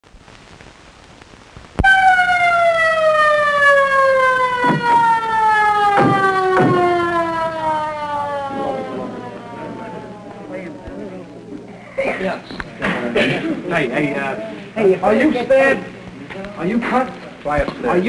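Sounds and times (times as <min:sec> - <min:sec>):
police car siren winding down: 0:01.8 - 0:11.0.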